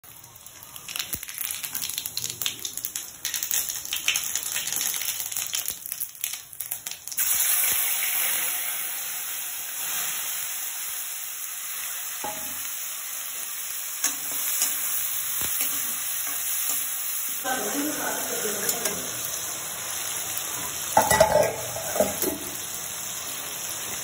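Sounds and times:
vegetables frying sizzle: 0.0 - 24.0
seeds popping in hot oil: 0.1 - 8.4, 14.0 - 17.4.

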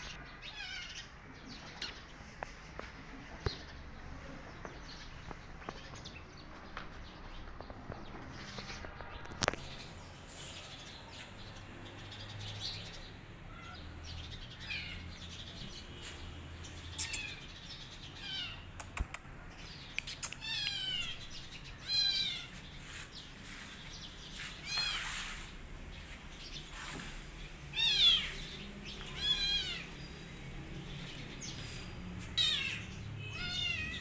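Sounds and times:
sharp clicks: 18.8 - 20.9.

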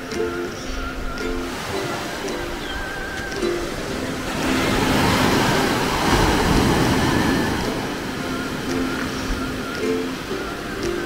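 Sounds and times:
light ukulele music: 0.0 - 11.0
ocean surf washing: 0.0 - 11.0.

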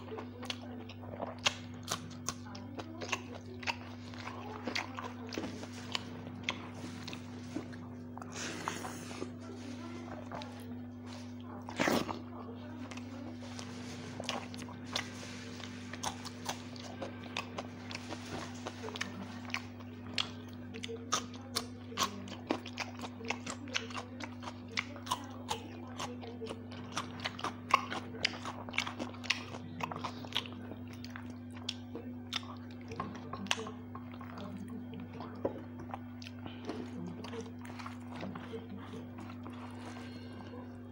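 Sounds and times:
wet chewing and mouth clicks: 0.0 - 9.4, 10.1 - 40.8
steady low hum: 0.0 - 40.9.

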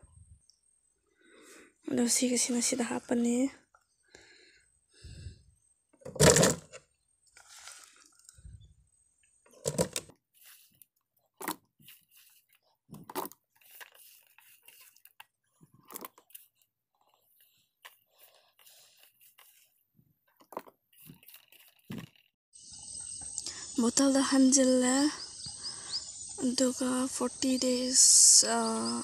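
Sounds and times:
scooping pickle scrapes and rustles: 7.3 - 8.4, 9.6 - 15.2.

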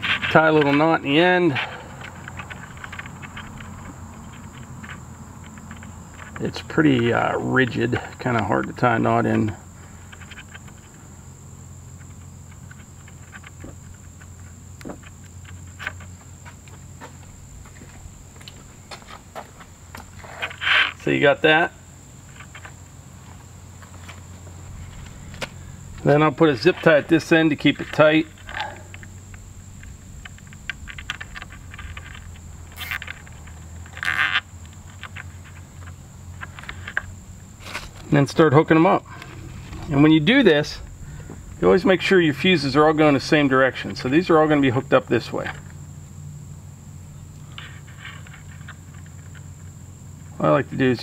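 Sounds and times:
fuse clicks and rustles: 0.0 - 46.1, 47.3 - 51.0
high-pitched insect drone: 0.0 - 51.0
low steady hum: 0.0 - 51.0
zip tie ratcheting: 30.8 - 35.3.

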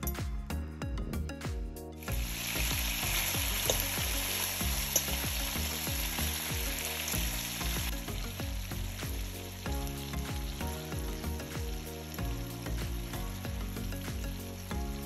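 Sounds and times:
meatballs sizzling in oil: 2.1 - 15.0.

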